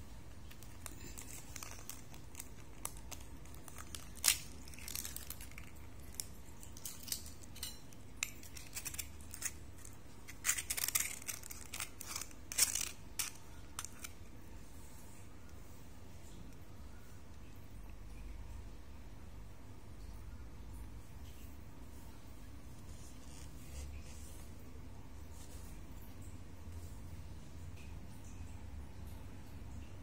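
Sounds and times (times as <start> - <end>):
eggshell cracking: 0.3 - 14.2.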